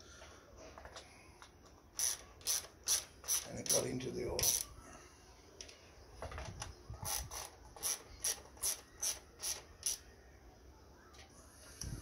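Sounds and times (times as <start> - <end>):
ratchet wrench clicking: 2.0 - 3.8, 4.4 - 4.6.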